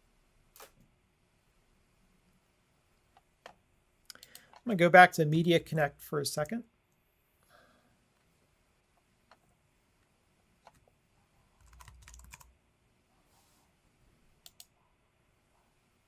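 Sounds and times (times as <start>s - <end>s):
sharp clicks: 3.2s - 4.6s, 14.4s - 14.7s
computer keyboard keystrokes: 11.6s - 12.5s.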